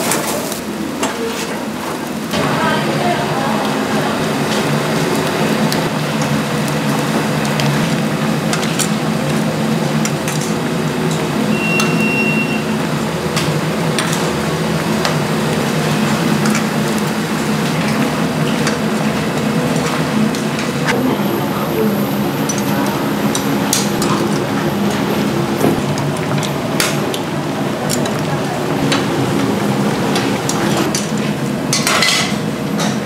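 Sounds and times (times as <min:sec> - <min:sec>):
steady hum: 0:01.7 - 0:33.0
short high beep: 0:11.5 - 0:12.7
tongs and ladle clinking on trays: 0:30.1 - 0:33.0.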